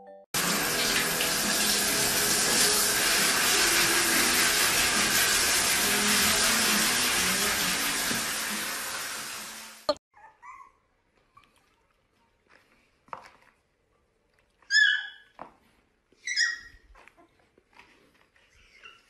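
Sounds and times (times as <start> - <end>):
puppy yipping and yelping: 10.1 - 10.9, 14.6 - 15.3, 16.2 - 17.3, 18.6 - 19.0.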